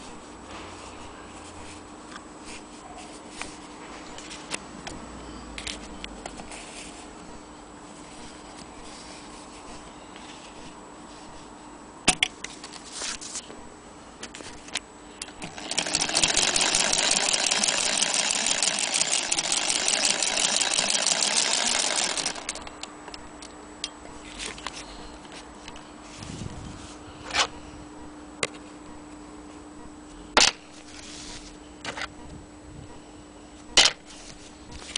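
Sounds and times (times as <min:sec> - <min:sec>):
sewing machine clatter: 0:15.4 - 0:22.7.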